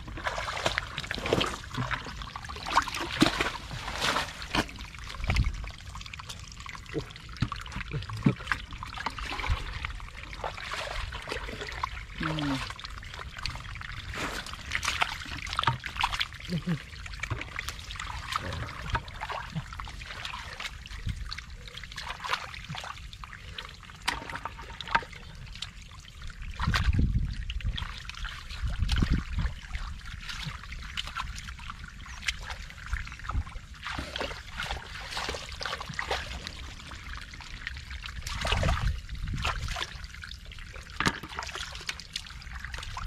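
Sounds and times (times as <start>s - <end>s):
hands splashing in muddy water: 0.0s - 5.5s.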